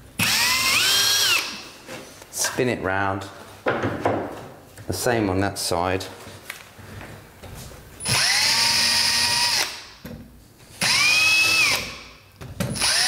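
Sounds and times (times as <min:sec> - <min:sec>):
cordless drill whining: 0:00.2 - 0:01.6, 0:08.0 - 0:09.8, 0:10.8 - 0:12.0, 0:12.7 - 0:13.0.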